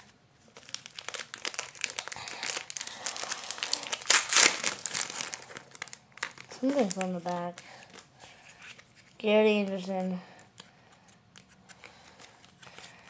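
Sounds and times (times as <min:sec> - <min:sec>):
foil wrapper crinkling: 0:00.4 - 0:13.0.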